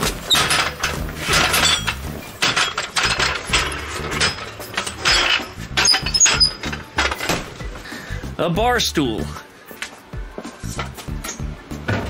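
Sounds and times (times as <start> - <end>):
floor jack rolling on concrete: 0.0 - 7.8.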